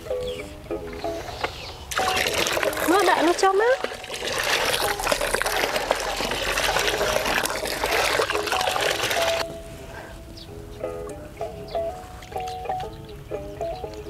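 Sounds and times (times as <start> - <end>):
water pouring into plastic bucket: 1.9 - 9.4.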